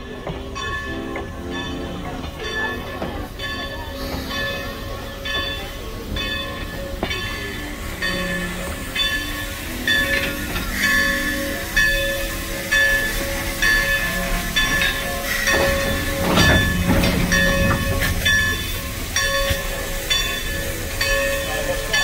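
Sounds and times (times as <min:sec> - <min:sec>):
locomotive bell ringing: 0:00.0 - 0:22.0.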